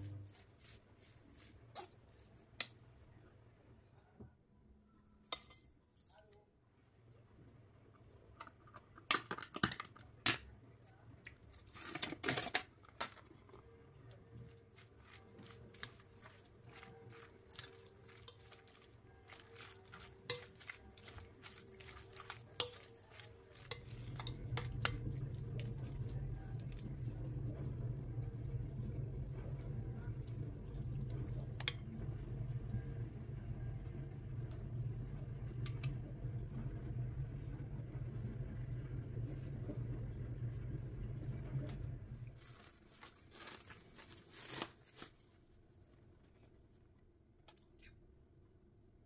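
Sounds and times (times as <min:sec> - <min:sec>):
steady low hum: 0:00.0 - 0:01.1, 0:13.7 - 0:42.4
metal utensils clinking on pots: 0:16.7 - 0:25.0.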